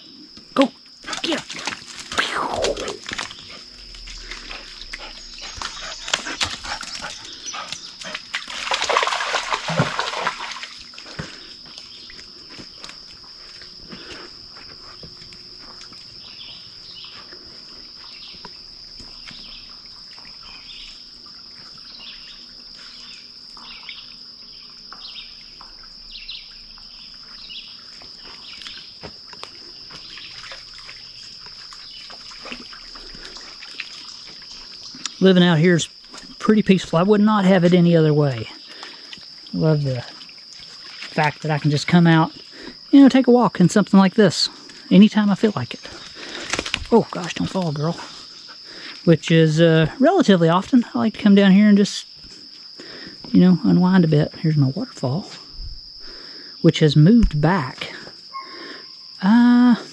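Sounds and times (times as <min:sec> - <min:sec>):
high-pitched insect drone: 0:00.0 - 0:59.9
dog splashing through creek: 0:01.0 - 0:24.2, 0:25.2 - 0:42.8, 0:44.6 - 0:49.3
paw steps on wet rock: 0:01.1 - 0:11.8, 0:46.0 - 0:46.9.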